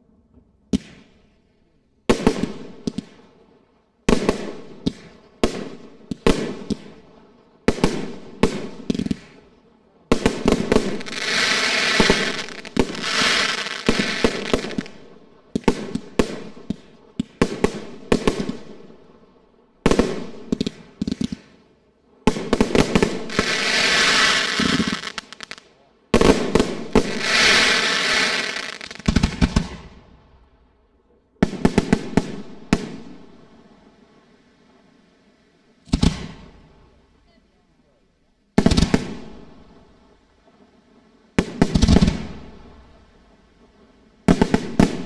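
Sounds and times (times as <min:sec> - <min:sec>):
fireworks bangs: 0:10.1 - 0:18.9, 0:22.3 - 0:30.2, 0:31.4 - 0:34.2, 0:35.8 - 0:37.0, 0:38.6 - 0:39.8, 0:41.4 - 0:45.0.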